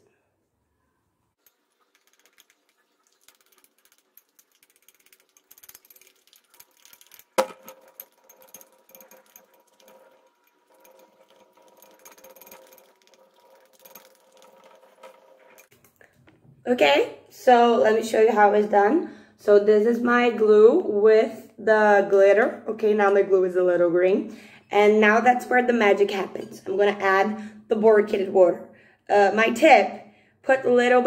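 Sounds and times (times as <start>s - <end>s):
utensil stirring in glass bowl: 1.4s - 15.8s.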